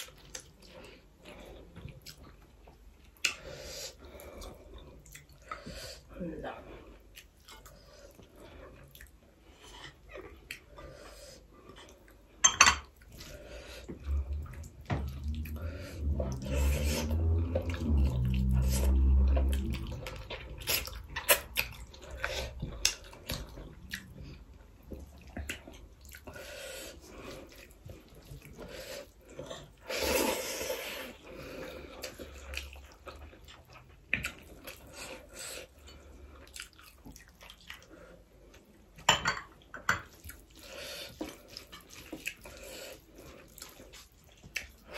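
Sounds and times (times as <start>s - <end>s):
wet squelching of food: 40.1s - 44.9s.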